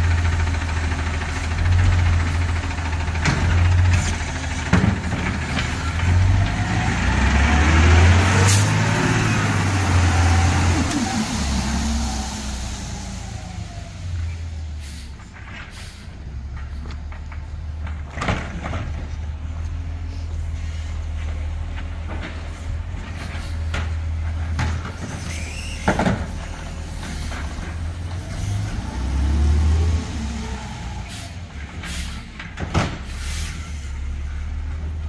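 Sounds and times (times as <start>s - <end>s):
diesel engine running: 0.0s - 35.0s
engine revving: 6.0s - 14.3s, 27.9s - 31.2s.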